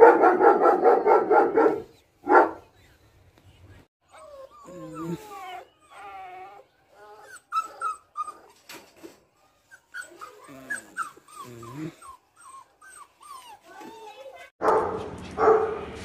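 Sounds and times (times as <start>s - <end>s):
puppy whining: 4.0s - 14.5s.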